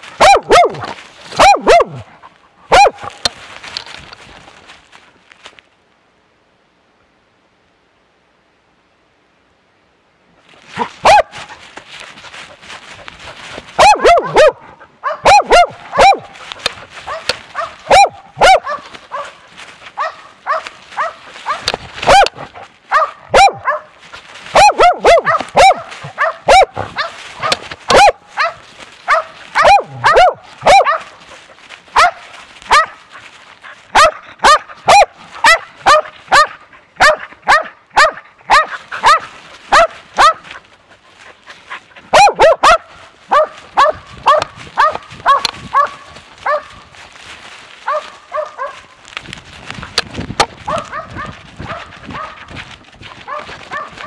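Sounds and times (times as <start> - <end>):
brush rustling: 0.0 - 6.0, 10.3 - 54.0
dog barking close: 0.2 - 2.1, 2.7 - 3.2, 10.8 - 11.5, 13.8 - 19.4, 20.0 - 31.2, 31.9 - 33.1, 33.9 - 40.5, 42.1 - 46.8, 47.8 - 48.9, 50.6 - 52.5, 53.2 - 54.0.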